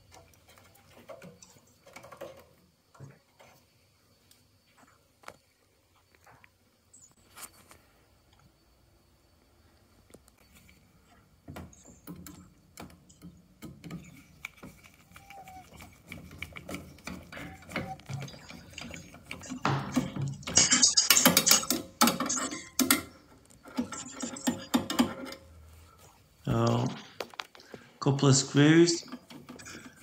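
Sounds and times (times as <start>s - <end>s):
screwdriver clicking on sheet metal: 12.1s - 23.0s.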